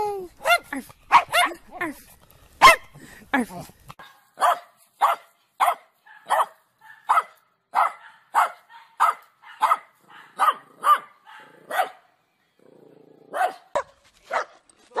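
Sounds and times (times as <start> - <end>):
dog barking: 0.4 - 1.6, 2.6 - 2.9, 4.0 - 12.0, 13.3 - 15.0.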